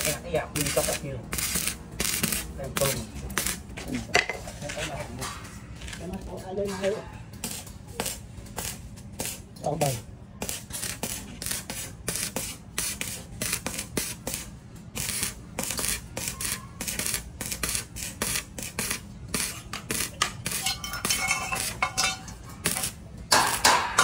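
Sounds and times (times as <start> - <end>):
ringing metallic clinks: 20.6 - 22.6.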